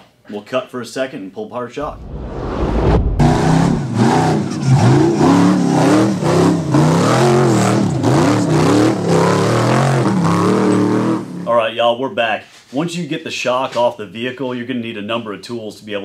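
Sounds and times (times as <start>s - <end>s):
buggy engine revving: 3.2s - 11.5s.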